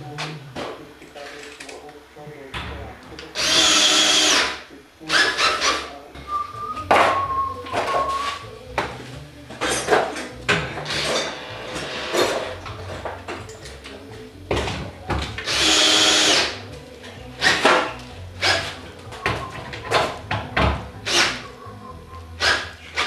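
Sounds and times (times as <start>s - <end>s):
power drill running: 3.4s - 5.8s, 15.4s - 16.6s.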